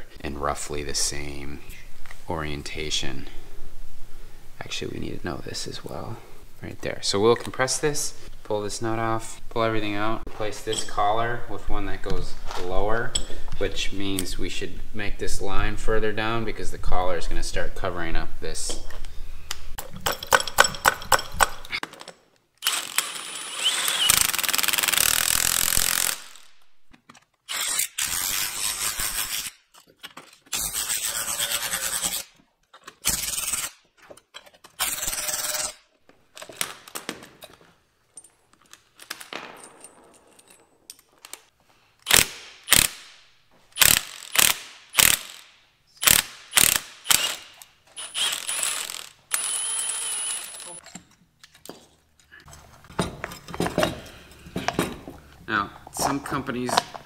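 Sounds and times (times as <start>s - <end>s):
impact wrench running: 22.6s - 26.6s, 42.0s - 43.0s, 43.8s - 45.4s, 46.0s - 50.8s.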